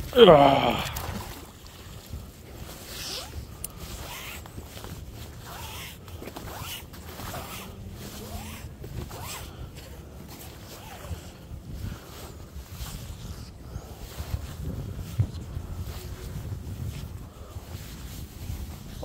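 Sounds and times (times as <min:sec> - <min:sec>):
wind rumble on microphone: 0:00.0 - 0:19.0
rope rustling as hauled in: 0:02.6 - 0:09.6.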